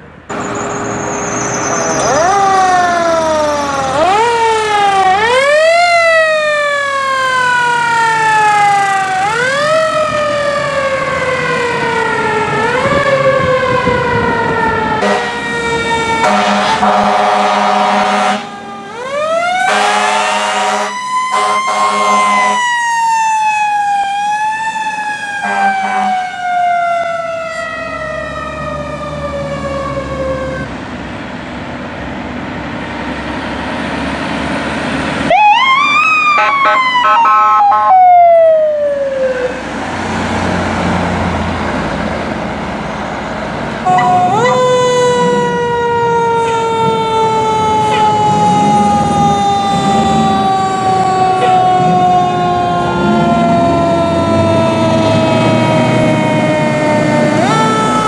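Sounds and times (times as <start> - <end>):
siren wailing: 0.3 - 30.7, 35.2 - 39.8, 43.7 - 58.0
air horn blasts: 15.0 - 15.5, 16.2 - 18.5, 19.6 - 22.6, 25.4 - 26.2, 43.9 - 45.3, 47.8 - 48.4, 51.3 - 53.2.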